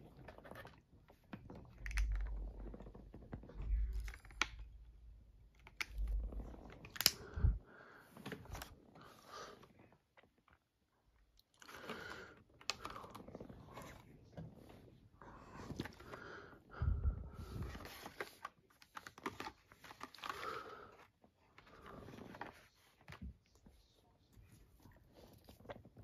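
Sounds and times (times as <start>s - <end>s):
plastic packaging crinkling and clicking: 0.1s - 4.8s, 5.5s - 7.4s, 11.4s - 14.0s, 17.6s - 23.6s.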